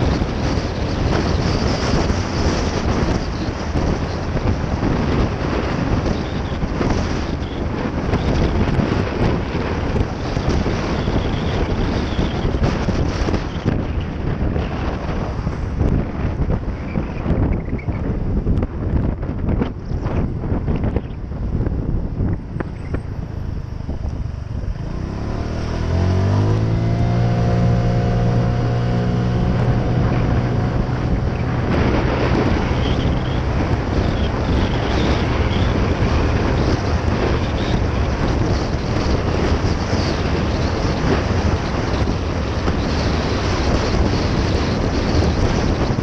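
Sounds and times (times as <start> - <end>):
wind buffeting on microphone: 0.0 - 46.0
scooter engine accelerating: 22.7 - 41.5.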